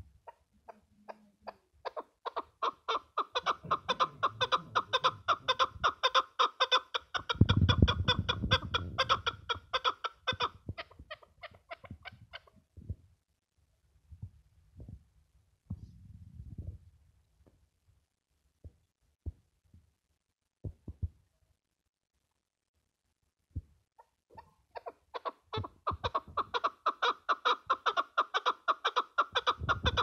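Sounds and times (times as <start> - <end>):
partridge clucking calls: 0.2 - 12.6, 24.0 - 30.0.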